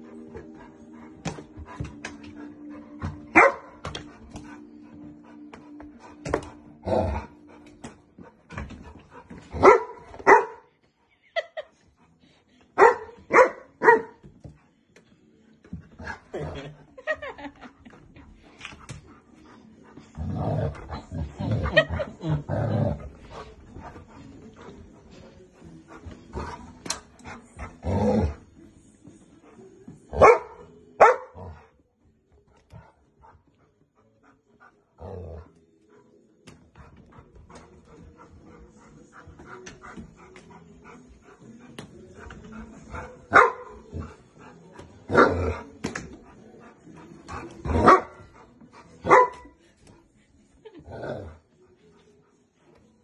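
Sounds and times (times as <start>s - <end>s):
dog barking: 3.4s - 3.7s, 9.6s - 10.7s, 12.8s - 14.2s, 30.2s - 31.4s, 43.3s - 43.7s, 47.8s - 48.2s, 49.0s - 49.5s.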